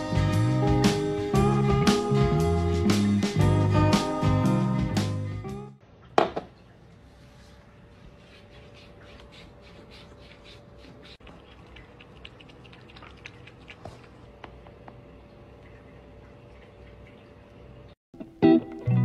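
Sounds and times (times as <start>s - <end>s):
music: 0.0s - 5.8s, 18.2s - 19.0s
cat lapping water: 8.4s - 14.3s, 15.4s - 17.9s.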